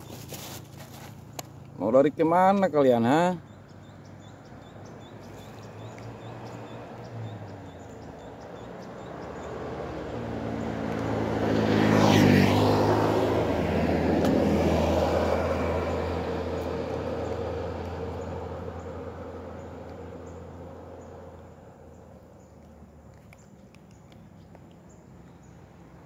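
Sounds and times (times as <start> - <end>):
vehicle driving past: 4.2 - 22.5.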